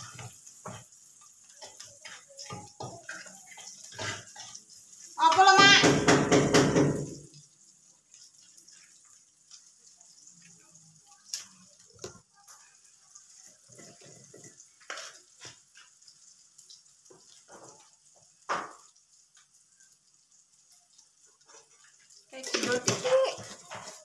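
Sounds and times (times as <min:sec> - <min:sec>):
kitchen knocks and clatter: 0:00.0 - 0:04.6, 0:05.2 - 0:07.4, 0:13.4 - 0:16.0, 0:16.9 - 0:19.0, 0:21.4 - 0:24.0.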